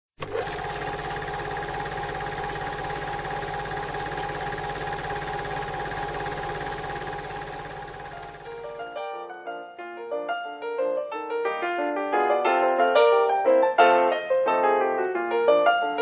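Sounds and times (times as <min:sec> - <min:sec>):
machine humming: 0:00.2 - 0:08.8.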